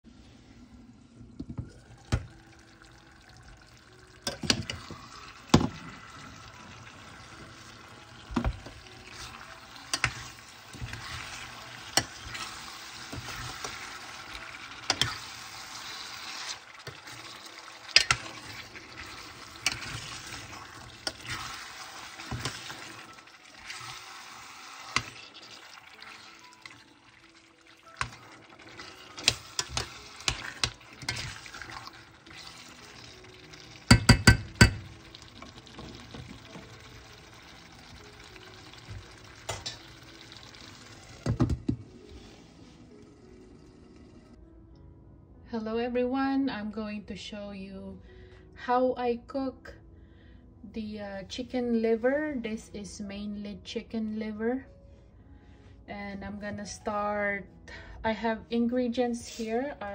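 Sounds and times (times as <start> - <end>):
spoon clinking on pot: 33.9 - 34.9.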